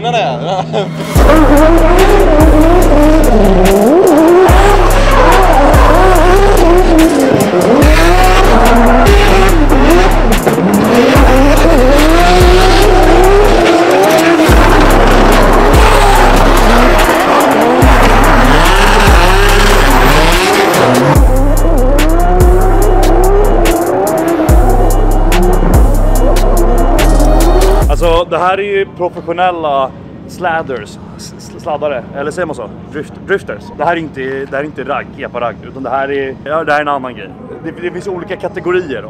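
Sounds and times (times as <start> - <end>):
car engines revving hard: 0.7 - 28.0
music with heavy bass beat: 0.9 - 28.2
tyres squealing: 3.2 - 27.6.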